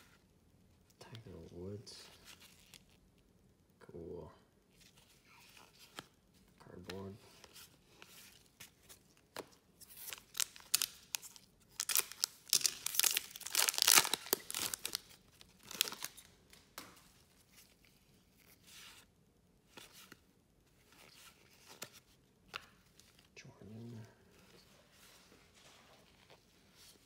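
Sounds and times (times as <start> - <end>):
cards being handled: 4.8 - 19.1, 19.7 - 23.3
foil wrapper tearing and crinkling: 9.9 - 16.3.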